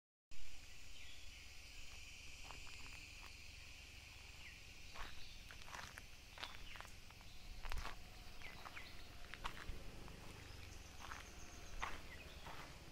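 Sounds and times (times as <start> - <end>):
insects droning: 0.4 - 12.9
footsteps crunching dry leaves: 4.1 - 12.9.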